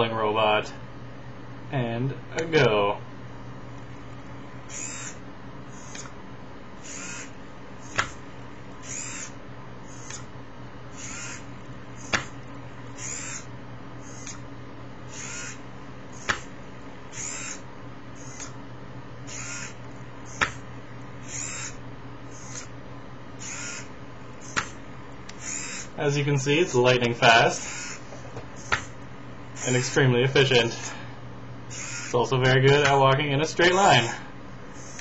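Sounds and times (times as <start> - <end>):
steady low hum: 0.0 - 35.0
small motors whirring: 4.6 - 6.2, 6.8 - 8.2, 8.8 - 10.3, 10.9 - 14.4, 15.1 - 16.5, 17.1 - 18.6, 19.2 - 20.6, 21.2 - 22.7, 23.4 - 26.0, 27.5 - 29.0, 31.7 - 32.2, 34.7 - 35.0
sharp mechanical click: 10.0 - 10.3, 18.2 - 18.6.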